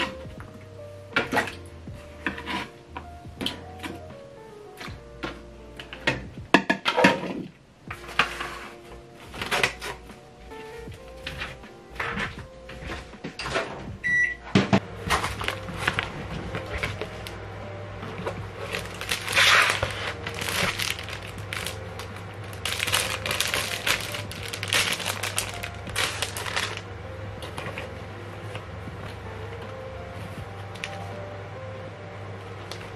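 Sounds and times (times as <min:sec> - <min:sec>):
microwave humming: 0:00.0 - 0:32.9
keypad beep: 0:14.0 - 0:14.4
plastic wrapping crinkling: 0:15.0 - 0:17.4, 0:18.2 - 0:26.9, 0:30.3 - 0:31.1.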